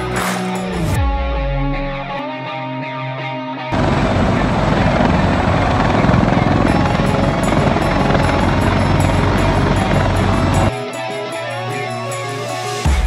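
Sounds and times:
helicopter rotors chopping: 0:03.8 - 0:12.2.

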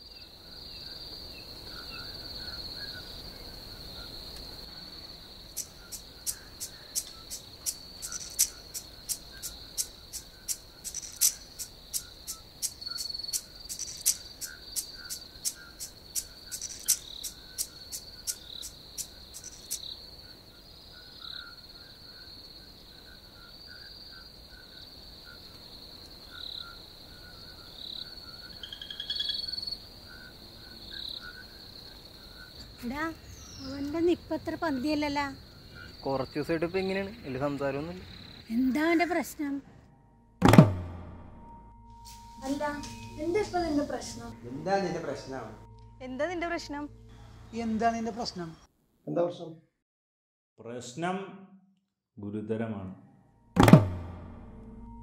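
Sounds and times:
crickets trilling: 0:00.0 - 0:39.6, 0:42.2 - 0:48.6
sharp even ticking: 0:05.4 - 0:19.9.

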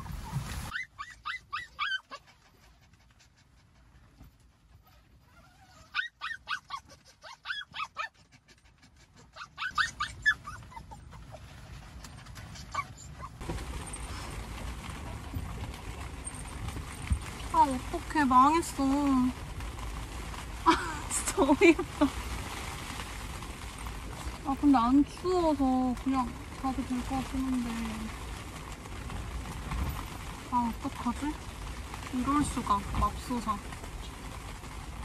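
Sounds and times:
small dog whining: 0:00.0 - 0:02.4, 0:04.8 - 0:08.2, 0:09.2 - 0:11.6, 0:12.4 - 0:13.4.

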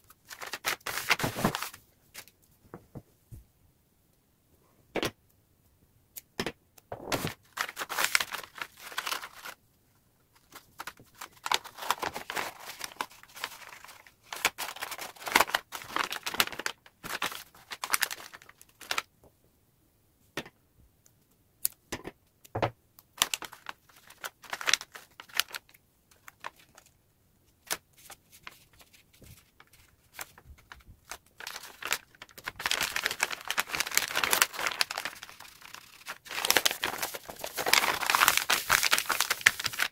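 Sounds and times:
wrapping paper rustling: 0:00.0 - 0:02.3, 0:07.1 - 0:09.6, 0:10.3 - 0:19.1, 0:23.2 - 0:26.9, 0:27.6 - 0:39.9.

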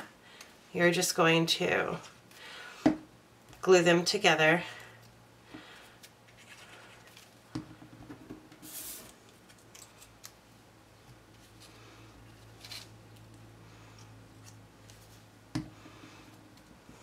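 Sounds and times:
paper sliding: 0:08.6 - 0:09.2.

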